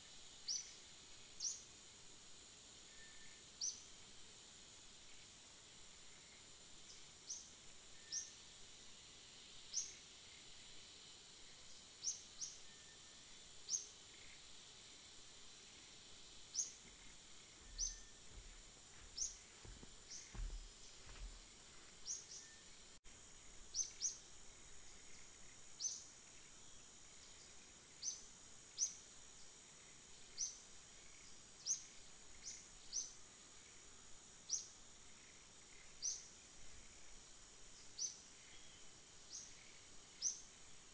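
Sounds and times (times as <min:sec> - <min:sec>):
high-pitched insect drone: 0:09.3 - 0:21.4
bird chirps: 0:17.6 - 0:19.4.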